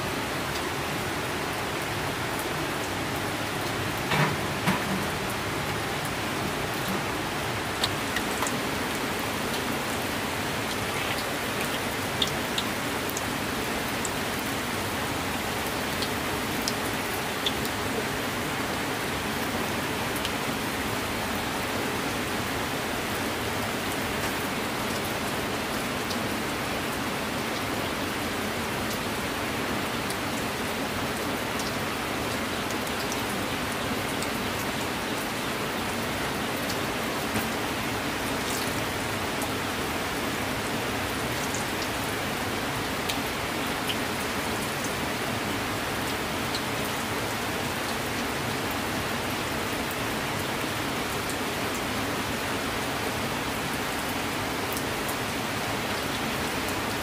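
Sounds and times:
steady rain: 0:00.0 - 0:57.0
faint raindrop ticks: 0:07.8 - 0:08.6, 0:10.6 - 0:13.3.

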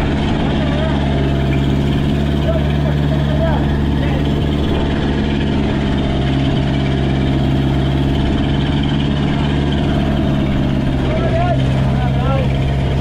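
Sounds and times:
boat engine running: 0:00.0 - 0:13.0.

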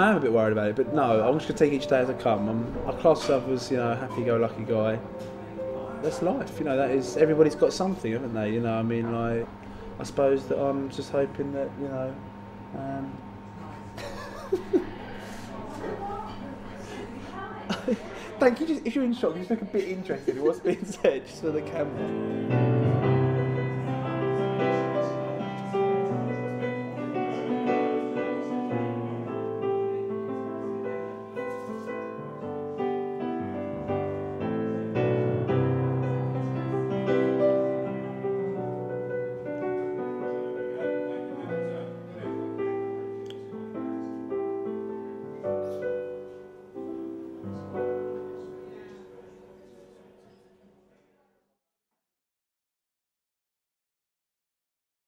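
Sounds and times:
slow solo piano piece: 0:21.3 - 0:50.1.

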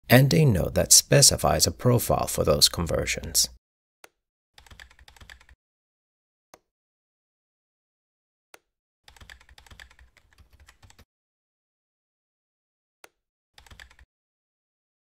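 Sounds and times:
computer keyboard typing: 0:04.6 - 0:05.6, 0:09.1 - 0:11.0, 0:13.6 - 0:14.1.

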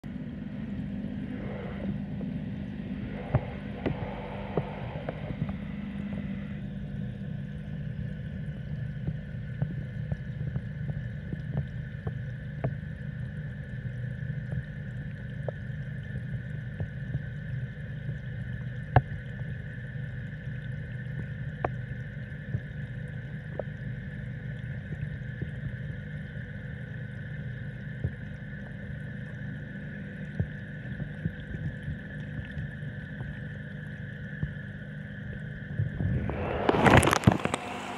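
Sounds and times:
steady high tone: 0:00.0 - 0:07.0, 0:35.9 - 0:37.9
pump humming: 0:00.0 - 0:37.9.

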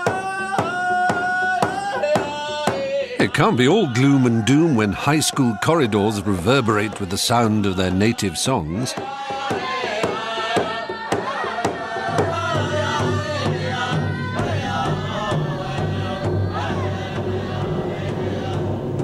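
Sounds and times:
young voices chanting: 0:00.0 - 0:19.0
large hand drum beating: 0:08.9 - 0:19.0.

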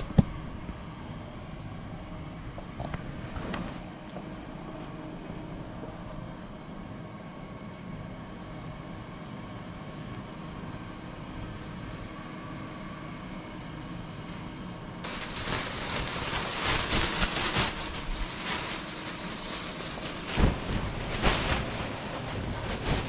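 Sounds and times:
steady low hum: 0:00.0 - 0:23.0
plastic sheet crinkling: 0:15.0 - 0:23.0.

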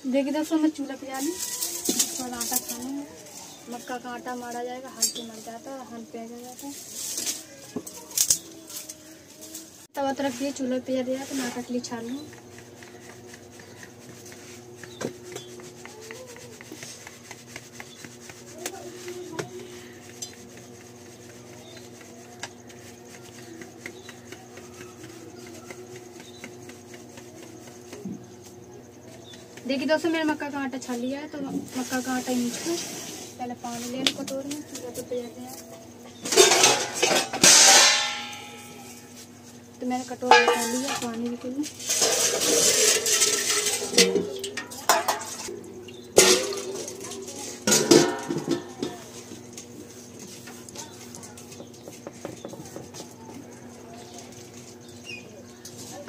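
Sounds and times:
flour sifting through sieve: 0:00.0 - 0:35.6, 0:36.2 - 0:56.0
metal utensils clinking on floor: 0:36.3 - 0:38.9, 0:40.3 - 0:41.2, 0:41.8 - 0:45.5.

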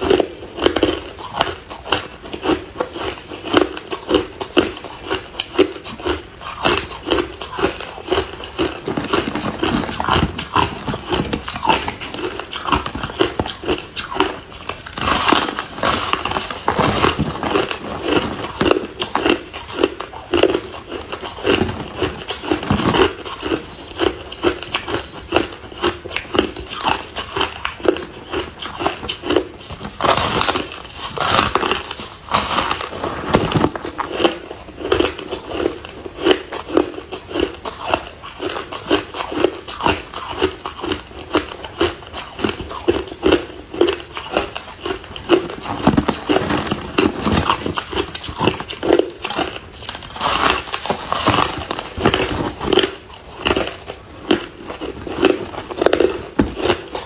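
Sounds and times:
crushed ice being chewed: 0:00.0 - 0:57.0.

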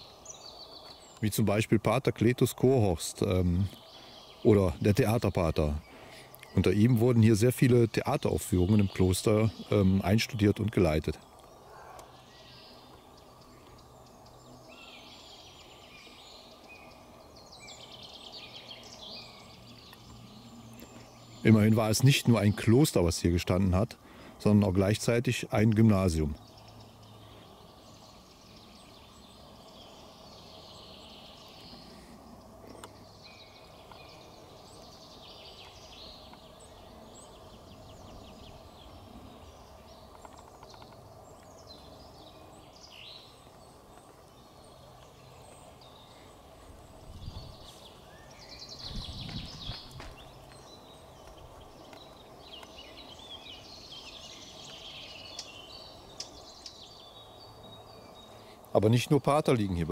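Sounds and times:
birds chirping and calling: 0:00.0 - 0:59.9
low bumps: 0:48.8 - 0:52.2.

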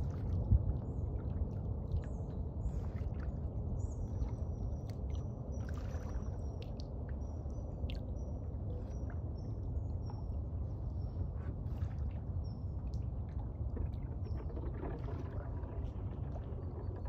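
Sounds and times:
water lapping and trickling: 0:00.0 - 0:17.0
low rumble: 0:08.5 - 0:17.0.

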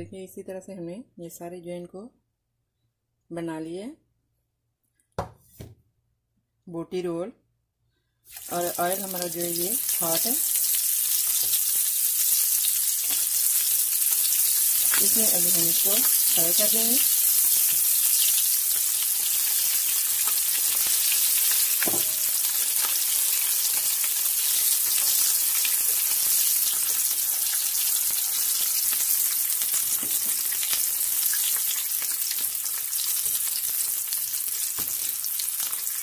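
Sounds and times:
knock: 0:05.2 - 0:05.8
food deep-frying in oil: 0:08.3 - 0:36.0.

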